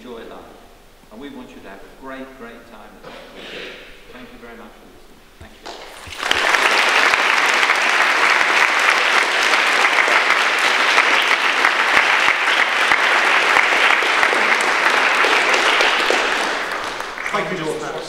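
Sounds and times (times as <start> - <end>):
audience applauding: 5.5 - 18.0.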